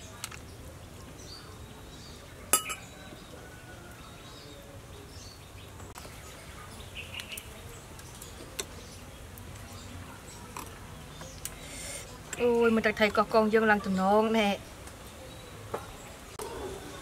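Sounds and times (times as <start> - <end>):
metal spoon clinking dishes: 2.5 - 3.0.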